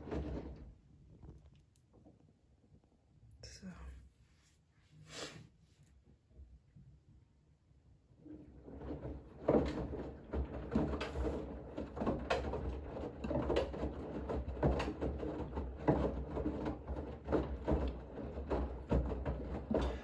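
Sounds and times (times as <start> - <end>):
laundry and water sloshing: 0.0 - 1.4, 8.2 - 20.0
washing machine motor hum: 8.1 - 20.0.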